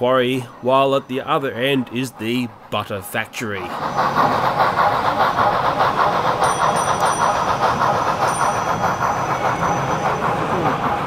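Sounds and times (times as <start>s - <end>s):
model train rushing with rhythmic pulse: 0.0s - 11.0s.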